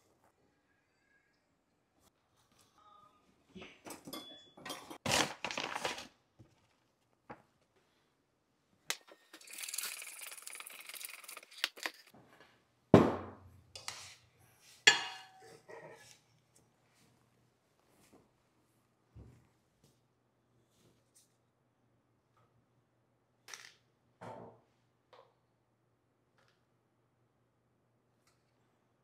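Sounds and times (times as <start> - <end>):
utensils clinking on dishes: 3.9 - 5.1, 14.9 - 16.0
powder pouch crinkling: 9.4 - 12.1
spoon stirring and scraping bowl: 13.8 - 16.2.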